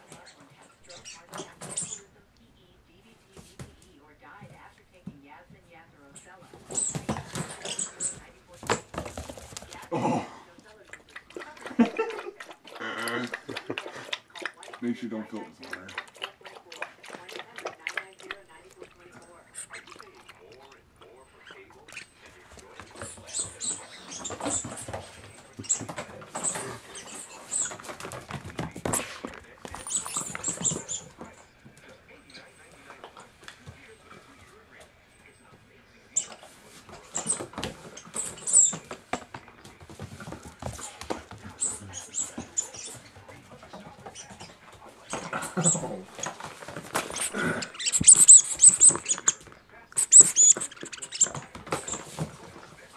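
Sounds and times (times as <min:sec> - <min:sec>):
puppy vocalizing: 0:06.2 - 0:34.3, 0:36.1 - 0:39.6, 0:40.2 - 0:52.9
dog claws skittering on hard floor: 0:06.6 - 0:09.9
high squeaks: 0:06.7 - 0:08.2, 0:21.4 - 0:28.0, 0:29.7 - 0:31.2, 0:37.0 - 0:38.9, 0:40.7 - 0:43.1, 0:44.1 - 0:49.4, 0:50.0 - 0:52.2.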